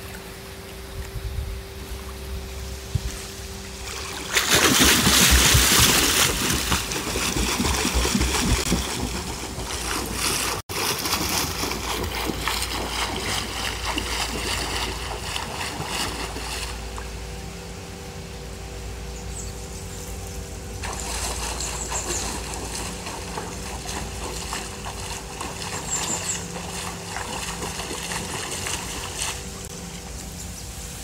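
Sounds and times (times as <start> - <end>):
pool water splashing from kicking: 3.8 - 17.1, 20.8 - 29.7.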